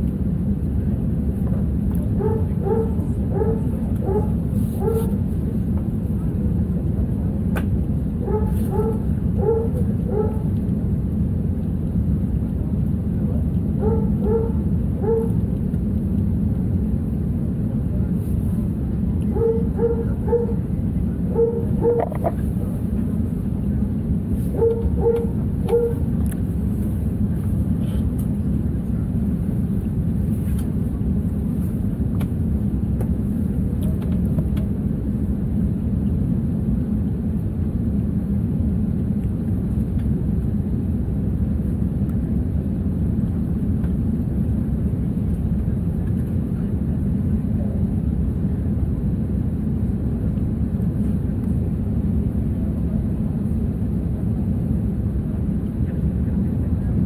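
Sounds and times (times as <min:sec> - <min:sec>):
airliner cabin low rumble: 0:00.0 - 0:57.0
dog barking: 0:02.2 - 0:05.2, 0:08.2 - 0:10.5, 0:13.8 - 0:15.4, 0:19.3 - 0:20.6, 0:21.3 - 0:22.4, 0:24.6 - 0:26.0.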